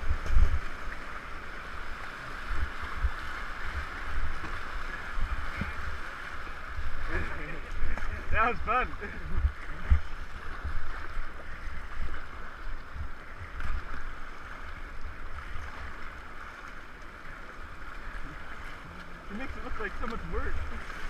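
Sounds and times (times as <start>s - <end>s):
wind buffeting microphone: 2.4s - 13.9s.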